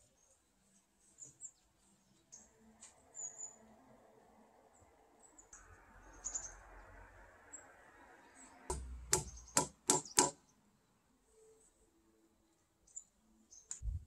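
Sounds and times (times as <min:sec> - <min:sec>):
hammer blows on timber: 0:08.7 - 0:10.4.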